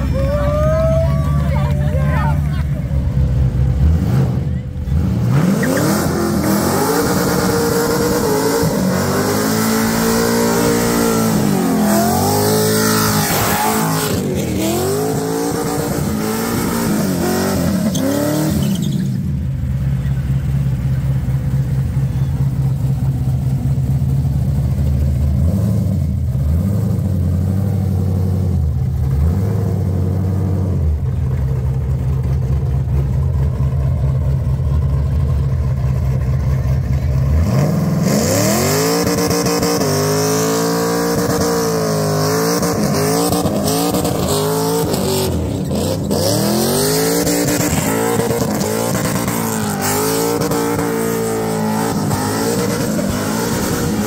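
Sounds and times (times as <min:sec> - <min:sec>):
car engine revving: 0:01.3 - 0:54.0.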